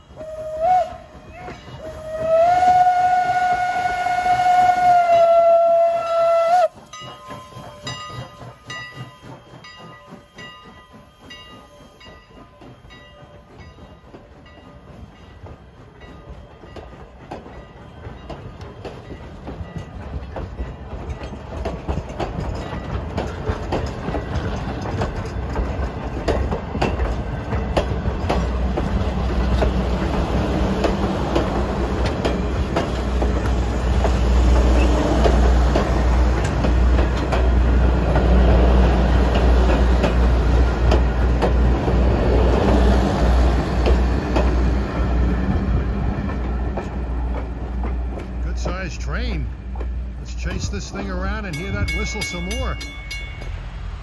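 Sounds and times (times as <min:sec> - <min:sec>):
shrill steam whistle: 0:00.0 - 0:08.2
low train rumble: 0:00.0 - 0:54.0
wheels clicking over rail joints: 0:00.6 - 0:53.8.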